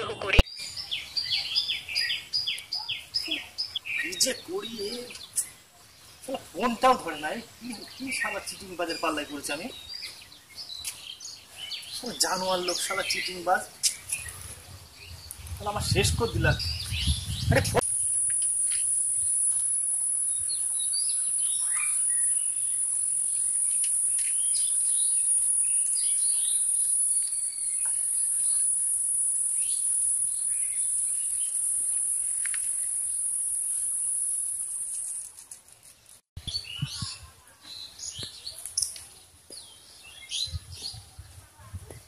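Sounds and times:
birds chirping: 0.0 - 35.3, 36.4 - 42.0
insects droning: 12.0 - 35.4.

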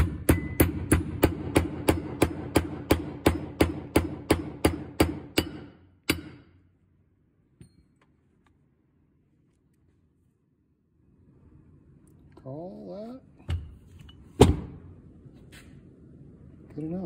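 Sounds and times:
metal ringing: 0.0 - 1.0.

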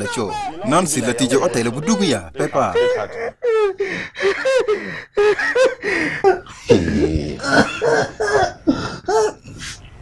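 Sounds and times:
people crying out: 0.0 - 3.8.

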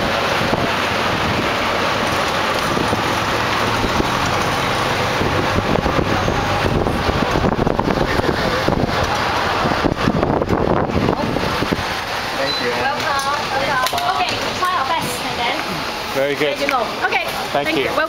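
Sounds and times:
wind buffeting microphone: 0.0 - 12.2
road traffic rumble: 0.0 - 18.0.

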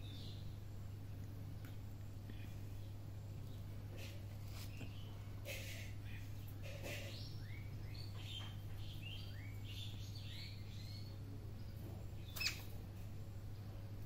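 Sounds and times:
steady low hum: 0.0 - 14.0
small bird chirping: 6.0 - 12.8.

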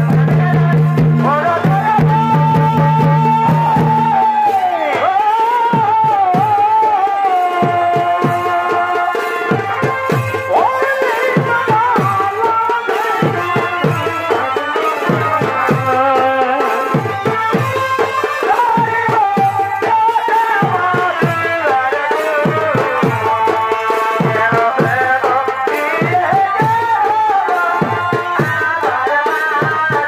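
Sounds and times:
fast dense drumming: 0.0 - 30.0.

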